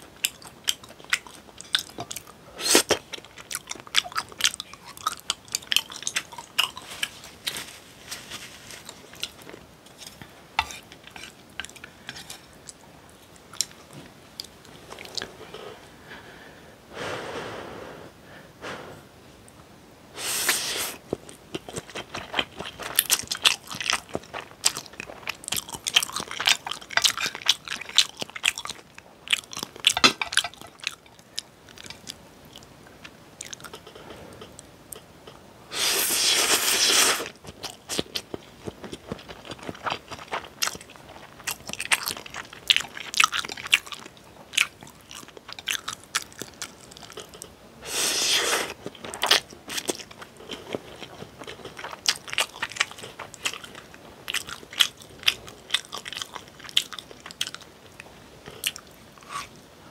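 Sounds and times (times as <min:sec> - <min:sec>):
loud noodle slurps: 0:20.2 - 0:21.0, 0:35.7 - 0:37.4, 0:47.8 - 0:48.8
wet chewing clicks: 0:21.1 - 0:33.9, 0:37.3 - 0:47.6, 0:48.5 - 0:59.0.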